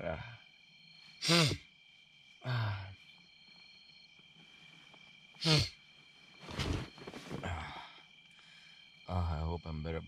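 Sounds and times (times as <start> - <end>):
man blowing or sniffing nose: 1.2 - 1.6, 5.4 - 5.7.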